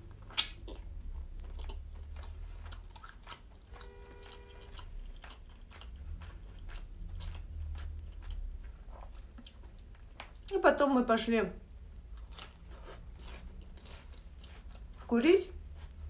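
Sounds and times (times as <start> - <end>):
wet chewing and mouth smacks: 0.0 - 10.5, 11.7 - 16.0.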